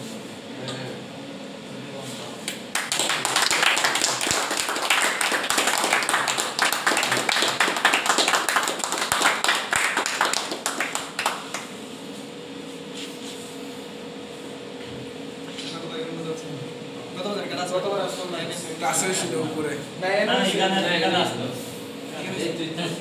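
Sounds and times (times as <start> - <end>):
group of people clapping: 2.5 - 11.8.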